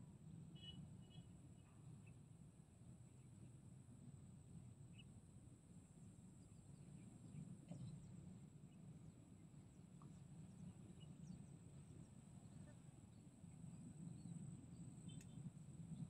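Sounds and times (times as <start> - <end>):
low steady rumble: 0.0 - 16.0
faint bird chirps: 0.5 - 2.3, 4.9 - 5.1, 6.4 - 16.0.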